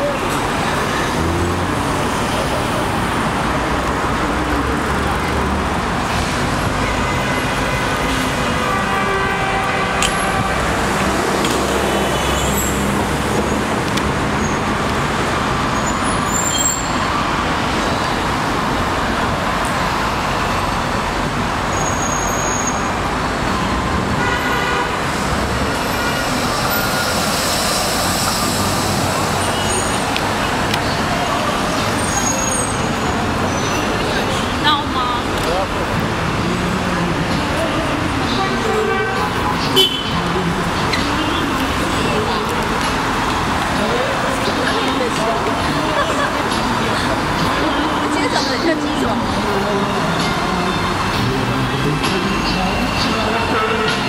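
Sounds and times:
city traffic: 0:00.0 - 0:54.0
car horn toots: 0:24.2 - 0:25.1, 0:38.5 - 0:40.2.

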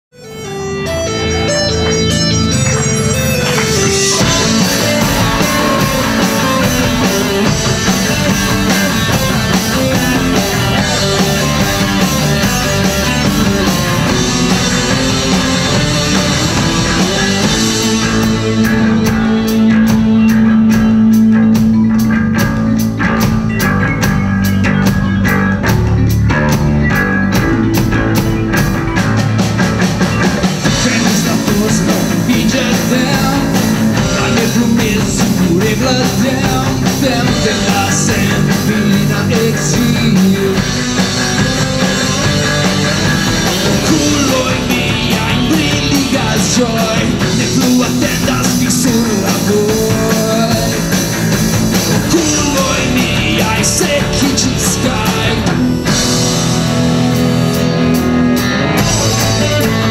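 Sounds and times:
rock band playing live: 0:00.1 - 0:59.9.

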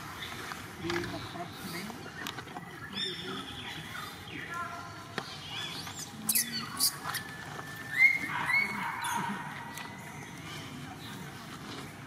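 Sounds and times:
baby monkey squeaking and crying: 0:06.0 - 0:09.2.

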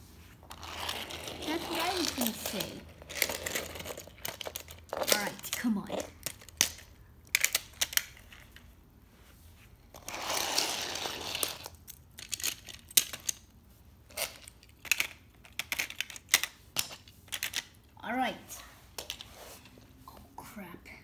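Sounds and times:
rustling scrape: 0:00.0 - 0:05.4, 0:08.4 - 0:11.8, 0:18.3 - 0:20.0
toy cars clicking on wooden floor: 0:00.4 - 0:08.7, 0:09.9 - 0:17.9.

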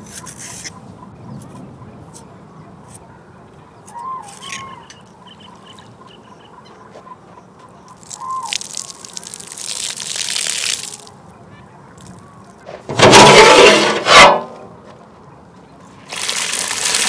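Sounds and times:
liquid pouring: 0:08.0 - 0:11.1, 0:16.1 - 0:17.0.

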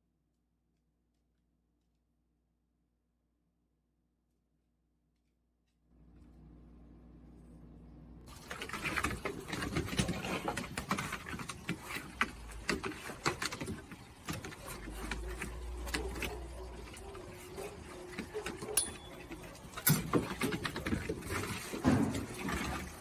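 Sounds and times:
faint hum: 0:06.0 - 0:08.3.

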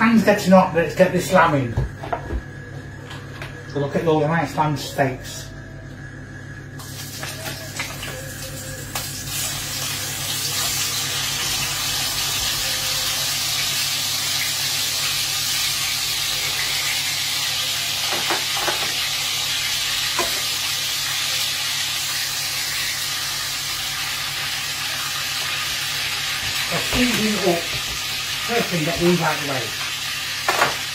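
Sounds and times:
meat sizzling in a frying pan: 0:06.8 - 0:30.9.

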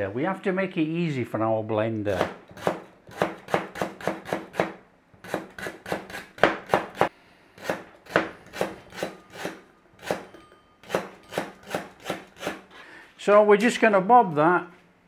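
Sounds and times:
knife chopping on cutting board: 0:02.1 - 0:10.3.

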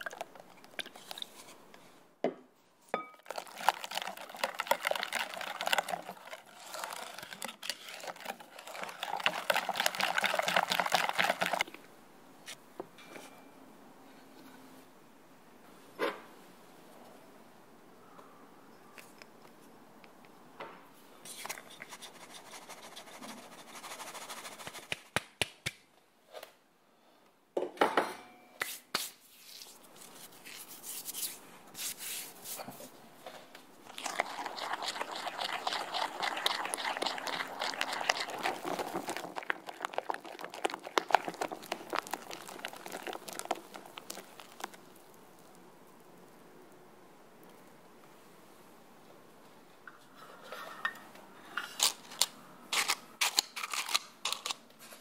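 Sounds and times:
batter scraping in glass bowl: 0:03.2 - 0:11.6, 0:33.9 - 0:44.8
flour sifted through sieve: 0:03.2 - 0:11.7, 0:21.3 - 0:24.9, 0:28.8 - 0:33.3, 0:33.9 - 0:45.5.

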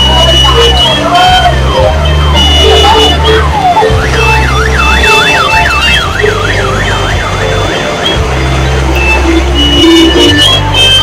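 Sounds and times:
electronic siren wailing: 0:00.0 - 0:08.2
music with heavy bass: 0:00.0 - 0:11.0.

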